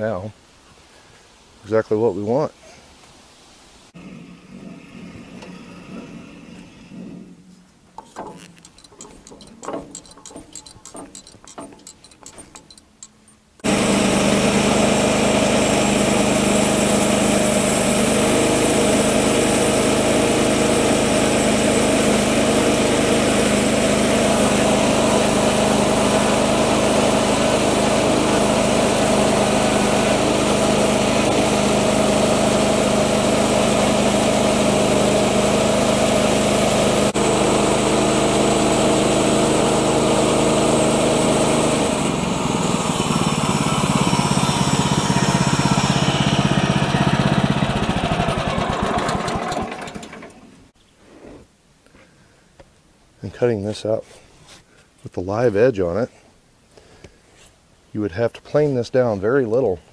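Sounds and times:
sawmill petrol engine running: 4.0s - 50.7s
light clicks and knocks: 8.0s - 13.3s.

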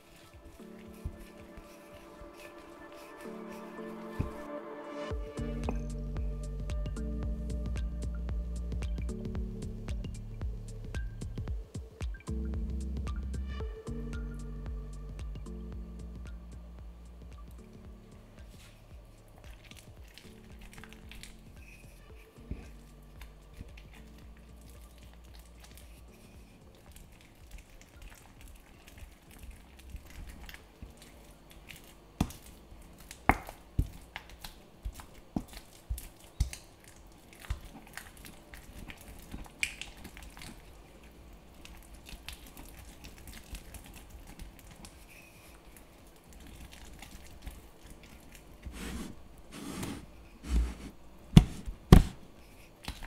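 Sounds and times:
pestle squelching and scraping: 0.0s - 7.7s, 17.6s - 53.0s.

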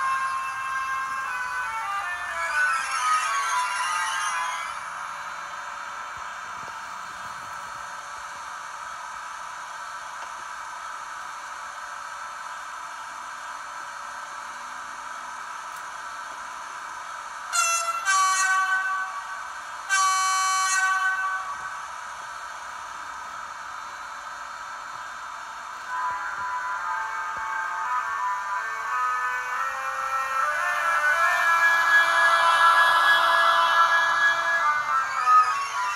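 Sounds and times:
electric locomotive running sound: 0.0s - 35.9s
locomotive horn blasts: 17.5s - 21.7s.

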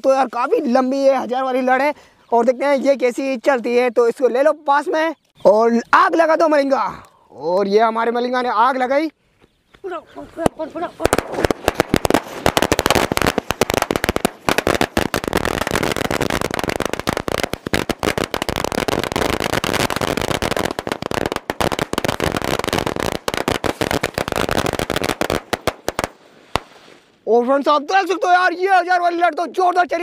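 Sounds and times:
firecracker string cracking: 10.4s - 27.2s.

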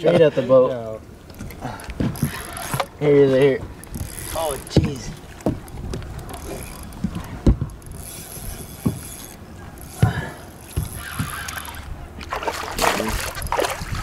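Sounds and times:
spinning reel cranking: 2.2s - 3.0s, 3.8s - 4.8s, 6.2s - 10.0s, 10.6s - 11.9s.

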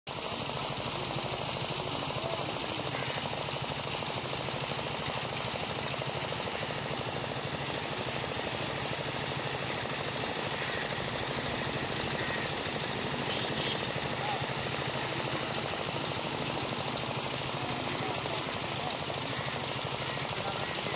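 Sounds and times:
water jet pouring into pond: 0.1s - 20.9s
water pump engine throbbing: 0.1s - 20.9s.

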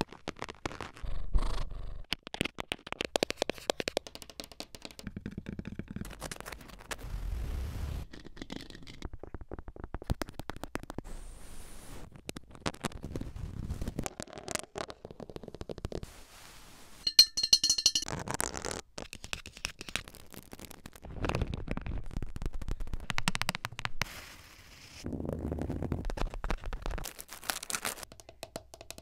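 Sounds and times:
drinking glass clinking: 17.1s - 18.0s.

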